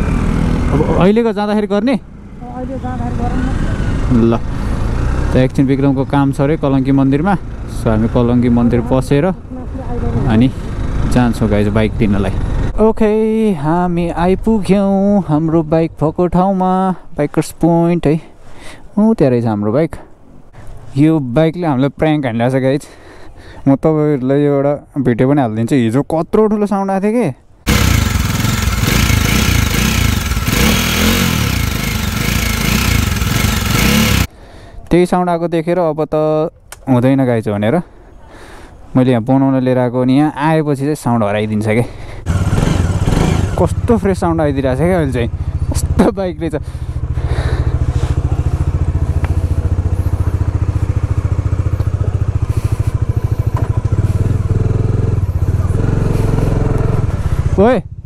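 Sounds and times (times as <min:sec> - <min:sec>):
motorcycle engine running: 0:27.7 - 0:34.3, 0:42.2 - 0:58.0.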